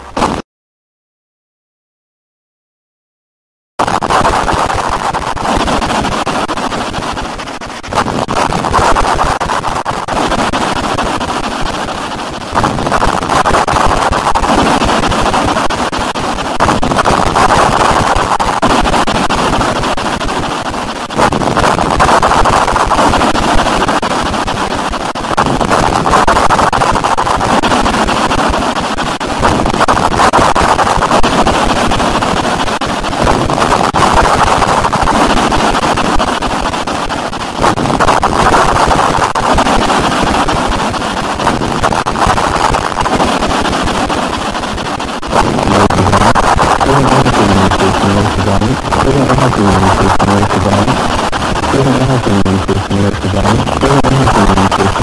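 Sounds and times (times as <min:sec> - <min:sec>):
harsh distorted noise music: 0:45.4 - 0:51.1, 0:51.7 - 0:55.0.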